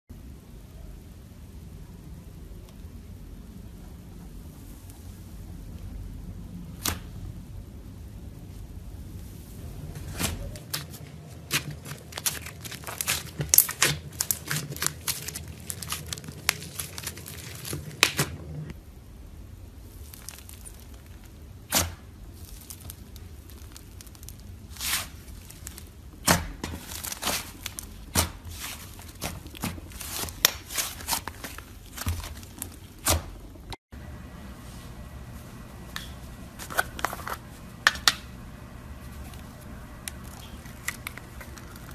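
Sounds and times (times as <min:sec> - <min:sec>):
slime crackling and crunching: 0:10.4 - 0:18.7, 0:19.8 - 0:33.6, 0:40.0 - 0:41.9
slime popping and squelching: 0:11.4 - 0:18.4, 0:19.9 - 0:33.7.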